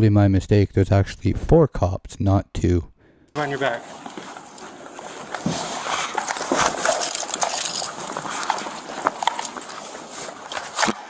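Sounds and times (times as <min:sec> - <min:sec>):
clothing rubbing on microphone: 0:03.4 - 0:11.0.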